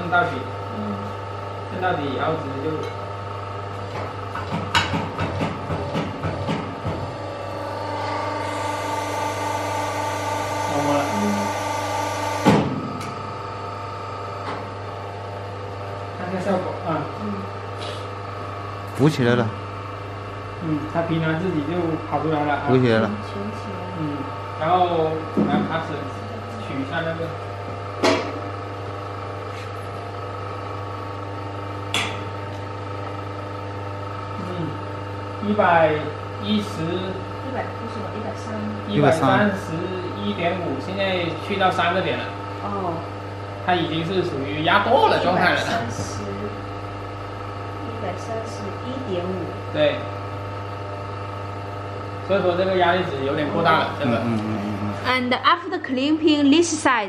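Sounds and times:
low machine hum: 0:00.0 - 0:57.0
hydraulic press hiss and whine: 0:07.1 - 0:14.8
loud machine clunk: 0:12.4 - 0:13.2.

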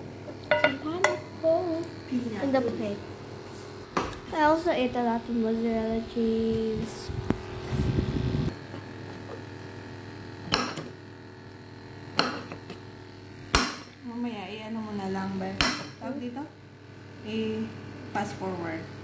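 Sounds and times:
knife knocking on ceramic plate: 0:00.5 - 0:01.2.

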